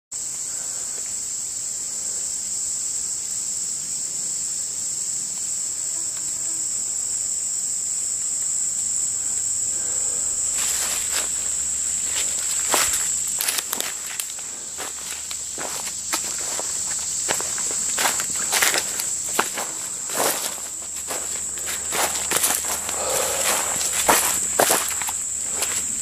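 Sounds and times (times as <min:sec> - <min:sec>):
insect chorus drone: 0:00.1 - 0:26.0
footsteps crunching in dry leaves: 0:09.8 - 0:26.0.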